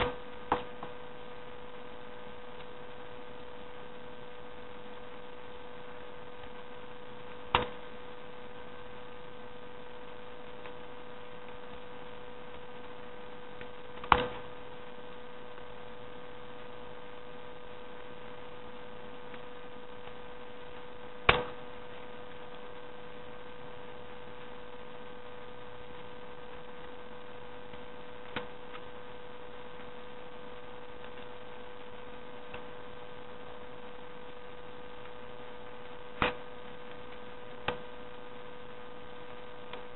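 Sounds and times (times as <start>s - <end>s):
steady electrical hum: 0.0s - 39.9s.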